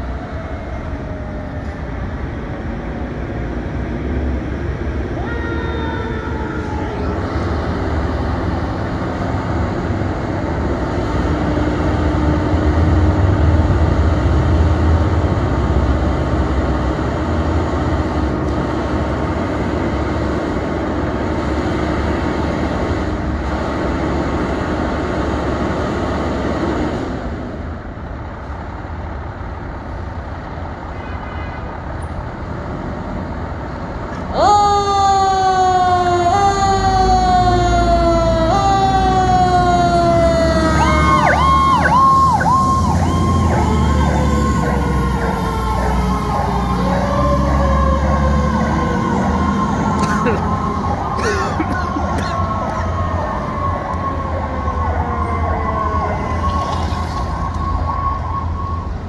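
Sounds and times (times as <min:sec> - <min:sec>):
diesel engine rumbling: 0:00.0 - 0:30.9, 0:35.8 - 0:59.0
electronic siren sweeping: 0:34.9 - 0:59.0.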